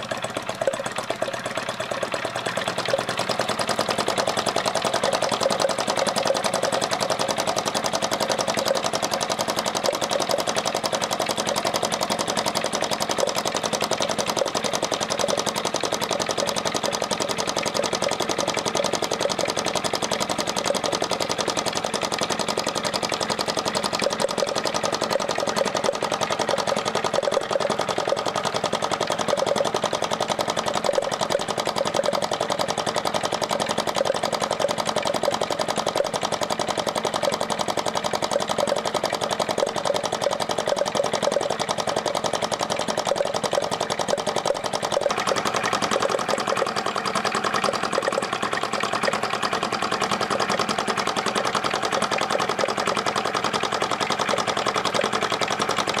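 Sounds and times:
hot-air engine clattering: 0.0s - 56.0s.

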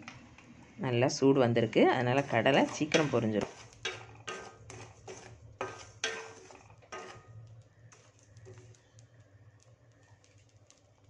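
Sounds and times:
spatula scraping metal pan: 1.6s - 9.0s
faint scattered clicks: 7.4s - 11.0s.

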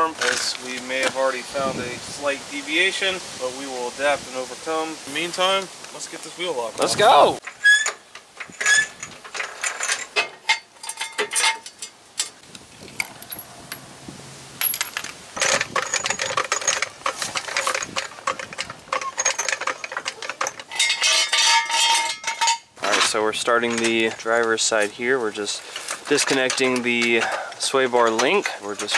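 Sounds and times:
metal clicks and clanks: 7.4s - 13.8s, 14.6s - 28.9s.

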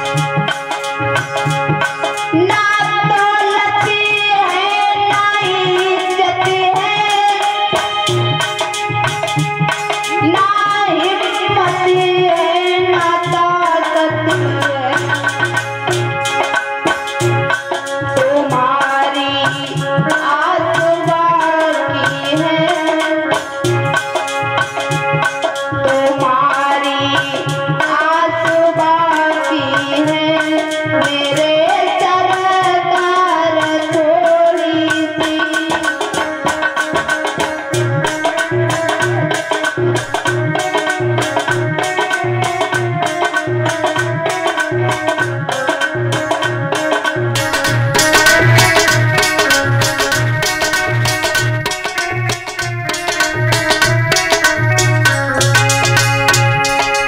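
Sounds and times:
tabla rhythm: 0.0s - 57.0s
gliding melodic lead line: 37.2s - 57.0s.

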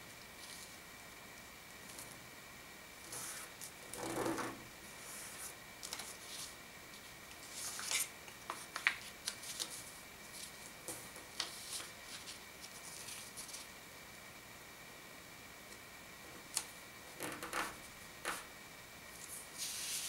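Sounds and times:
paper rustling and crinkling: 5.2s - 13.7s.

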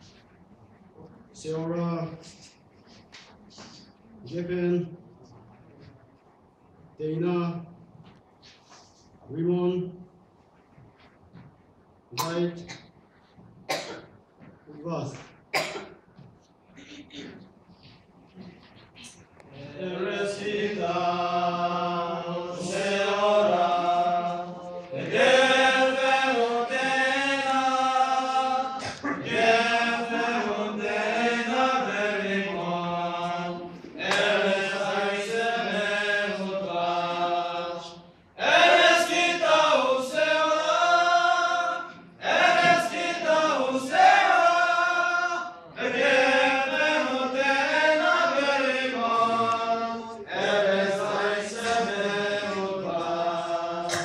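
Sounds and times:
group of voices singing: 19.5s - 54.0s.

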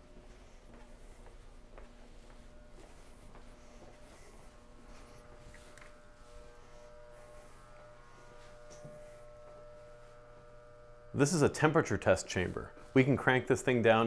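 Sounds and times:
soft footsteps: 0.0s - 10.8s
electrical hum of equipment: 0.0s - 14.0s.

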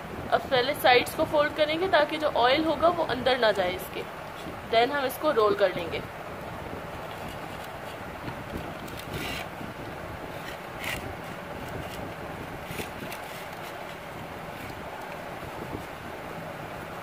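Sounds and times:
steady background hiss: 0.0s - 17.0s
pastry wrapper rustling: 10.3s - 15.9s.

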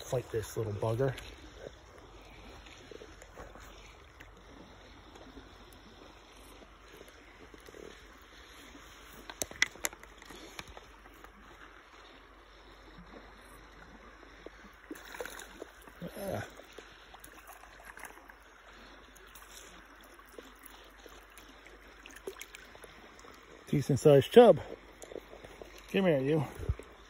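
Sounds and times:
river water lapping around boat: 0.0s - 27.0s.

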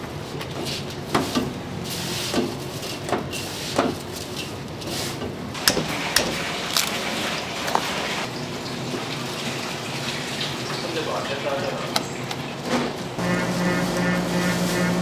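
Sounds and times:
hands mixing rice in metal bowl: 0.2s - 8.3s.

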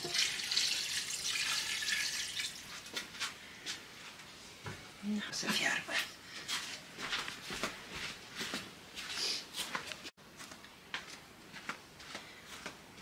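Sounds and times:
footsteps on hard floor: 6.4s - 12.8s.

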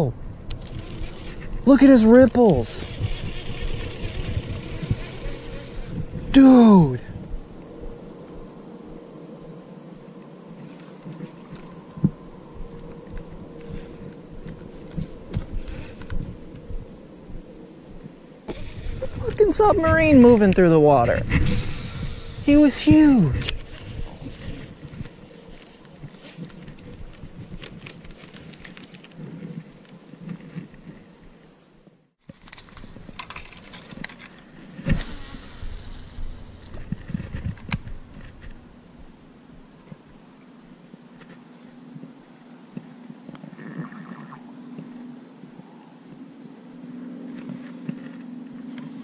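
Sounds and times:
fishing reel clicks and rustling: 0.4s - 6.2s, 21.5s - 30.7s, 32.2s - 38.6s
fishing reel whirring: 0.5s - 6.4s
reel clicks: 2.2s - 6.1s.

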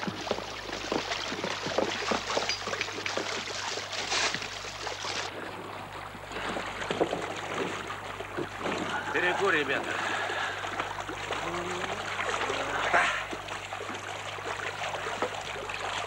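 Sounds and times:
water running through sluice: 0.0s - 16.0s.

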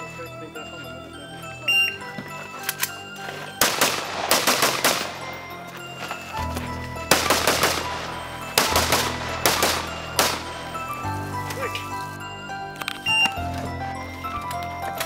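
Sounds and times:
background music: 0.0s - 15.0s
rifle shots: 3.6s - 5.4s, 7.1s - 10.7s.

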